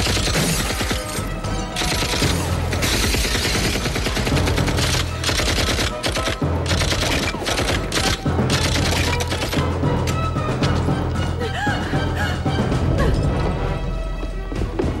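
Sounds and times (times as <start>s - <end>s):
low droning music score: 0.0s - 15.0s
automatic gunfire bursts: 1.8s - 9.6s.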